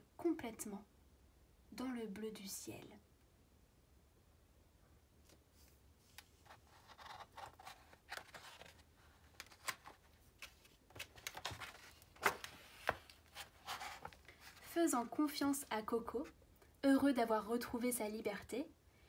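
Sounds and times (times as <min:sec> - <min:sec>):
book pages turning: 0:05.2 - 0:15.1.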